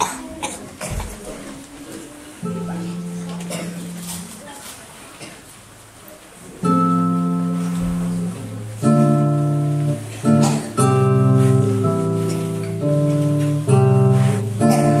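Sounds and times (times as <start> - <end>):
classical guitar chords: 1.5 - 4.5, 6.5 - 15.0.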